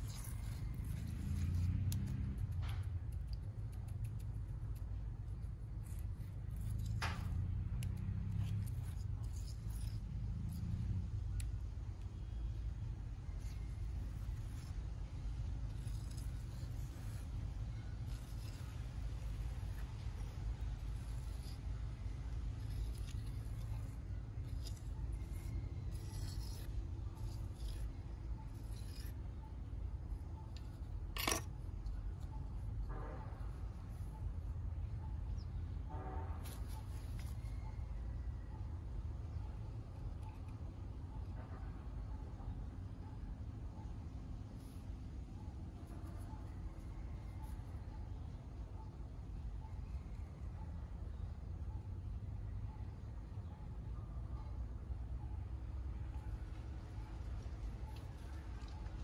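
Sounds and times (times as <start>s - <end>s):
trowel scraping wet cement: 0.0s - 2.4s, 15.6s - 29.2s, 30.4s - 32.7s, 36.4s - 37.8s.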